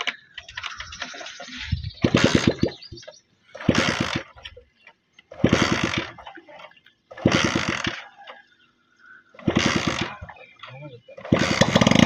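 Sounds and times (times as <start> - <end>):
motorcycle engine chugging: 0.0 - 4.5, 11.2 - 12.0.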